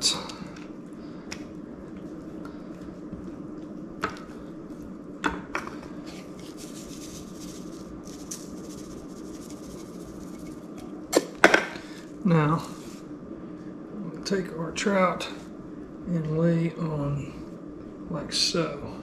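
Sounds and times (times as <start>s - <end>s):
seasoning shaker hiss: 6.0s - 10.8s, 11.9s - 13.1s.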